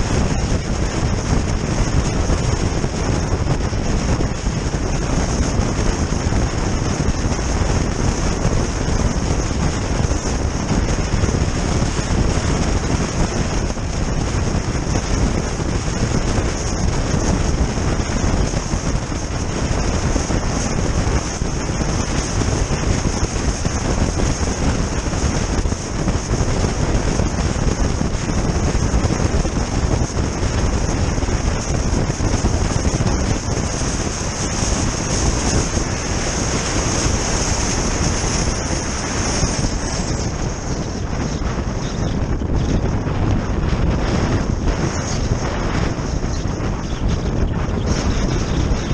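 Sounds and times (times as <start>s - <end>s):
tyres rumbling on road: 0.0s - 48.9s
wind rushing over microphone: 0.0s - 48.9s.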